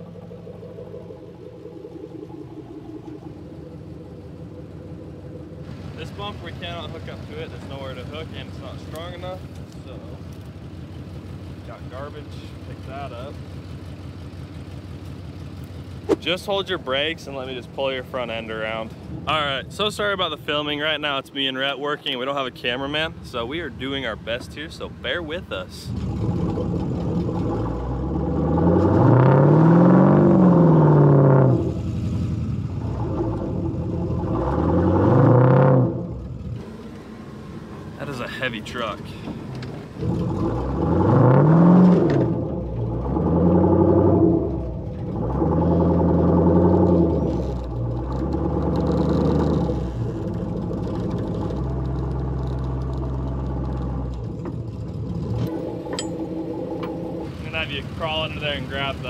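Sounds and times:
engine revving under load: 0:25.8 - 0:59.0.

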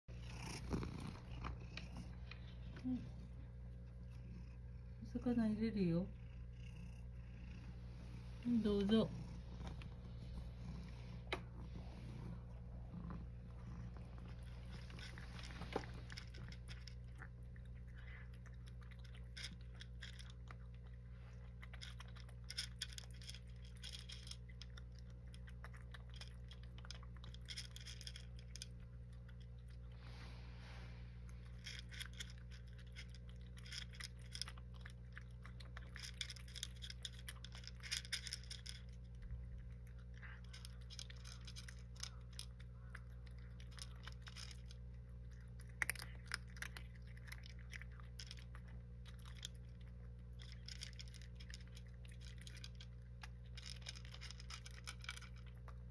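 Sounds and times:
low hum: 0:00.0 - 0:55.9
cat crunching dry kibble: 0:00.1 - 0:55.9.

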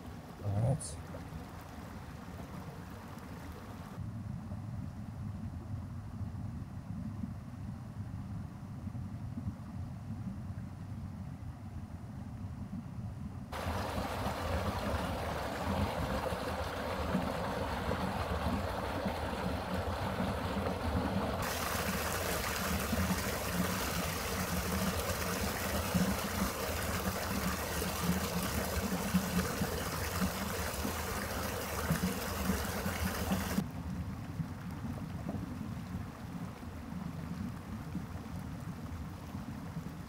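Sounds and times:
water rushing over rocks: 0:13.6 - 0:33.6.

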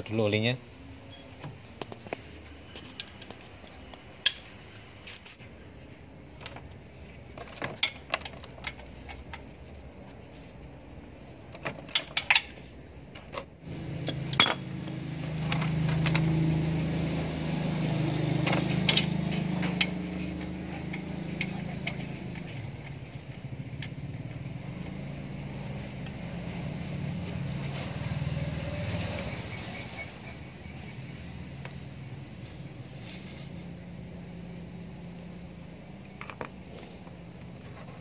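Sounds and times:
wrench clinking on metal: 0:04.2 - 0:04.6, 0:14.1 - 0:15.0.

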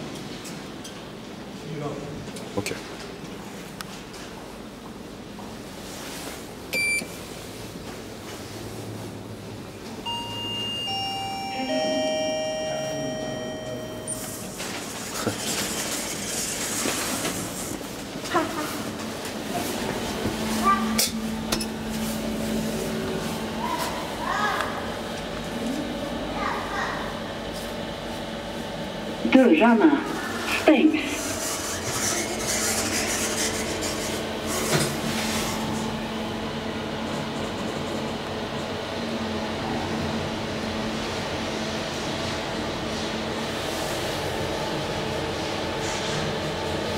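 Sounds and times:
elevator hum: 0:06.4 - 0:46.9
elevator chime falling notes: 0:10.0 - 0:14.5.

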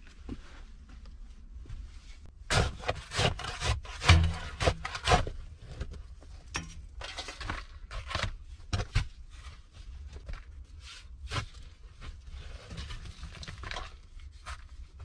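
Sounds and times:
debris crumbling and scraping: 0:02.5 - 0:09.1, 0:12.2 - 0:15.0.

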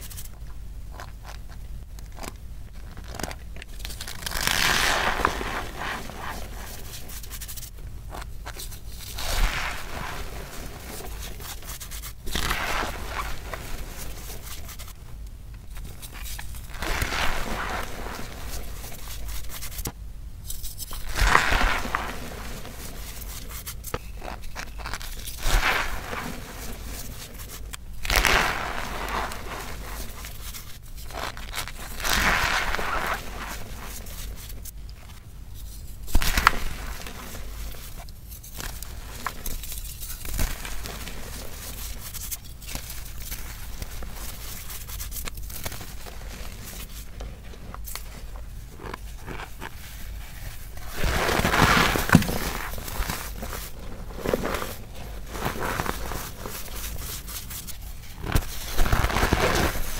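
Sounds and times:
powder squeezed with squeaky crunch: 0:23.0 - 0:35.1.

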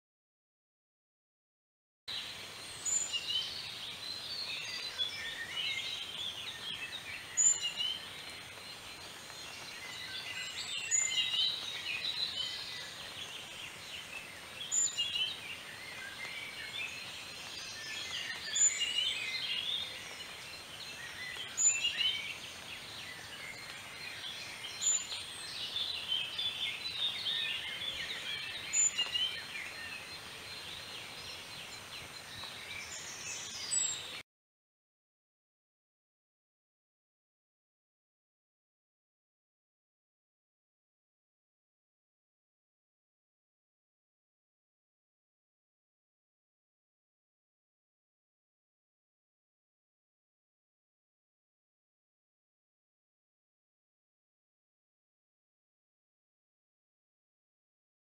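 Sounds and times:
small birds chirping: 0:02.1 - 0:34.2.

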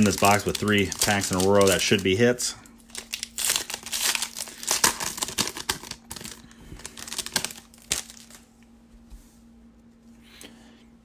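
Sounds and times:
foil wrapper crinkling: 0:00.0 - 0:08.5
faint steady hum: 0:00.0 - 0:11.0.

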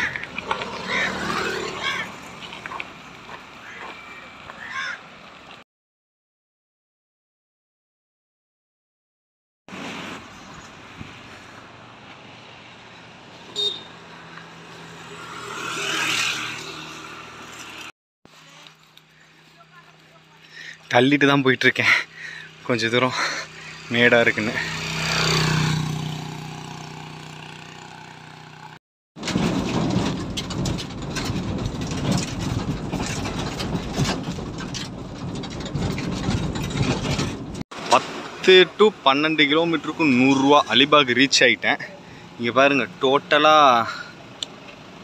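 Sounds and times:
vehicle passing by: 0:00.0 - 0:03.5, 0:09.7 - 0:17.9, 0:21.9 - 0:28.8
truck engine and road rumble: 0:00.0 - 0:05.6, 0:09.7 - 0:45.0
cargo rattling and knocking: 0:29.2 - 0:37.6.

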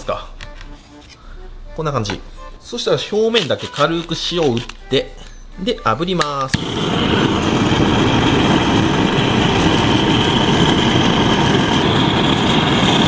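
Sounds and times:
gas blowtorch burning: 0:06.5 - 0:13.0.

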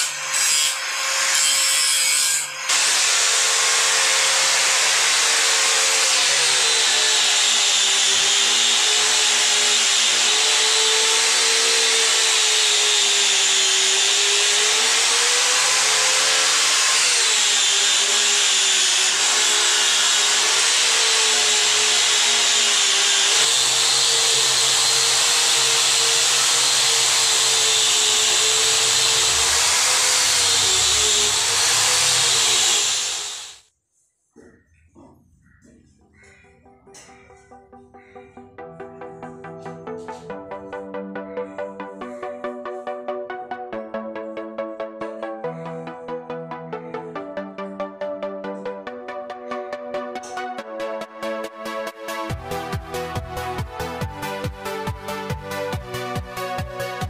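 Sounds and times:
angle grinder grinding metal: 0:00.0 - 0:33.6, 0:49.6 - 0:57.0.

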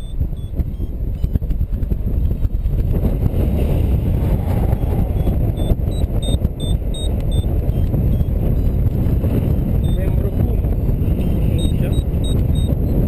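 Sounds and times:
short high beeps: 0:00.0 - 0:01.4, 0:04.6 - 0:08.8, 0:11.2 - 0:12.8
wind rushing over microphone: 0:00.0 - 0:13.0.

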